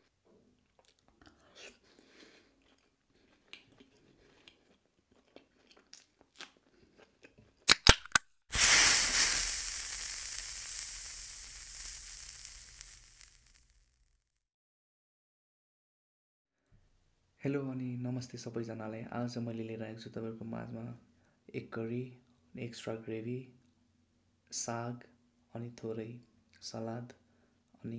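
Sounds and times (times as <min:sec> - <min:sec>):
faint chewing: 0:00.0 - 0:07.8
sharp clicks: 0:07.7 - 0:13.7
hiss-like whoosh: 0:08.5 - 0:13.9.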